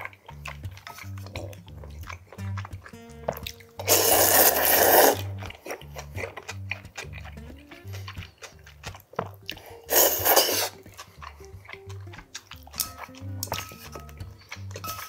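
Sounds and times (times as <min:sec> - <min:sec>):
background music with bass line: 0:00.0 - 0:15.0
chewing: 0:00.0 - 0:15.0
chopsticks clicking: 0:00.0 - 0:15.0
person slurping noodles: 0:03.8 - 0:06.4, 0:09.6 - 0:11.9.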